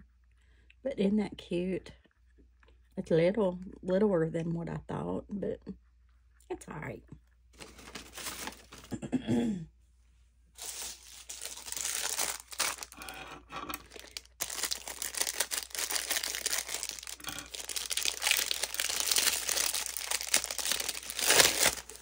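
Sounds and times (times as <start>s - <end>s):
plastic bag crinkling: 7.6s - 9.0s, 10.6s - 22.0s.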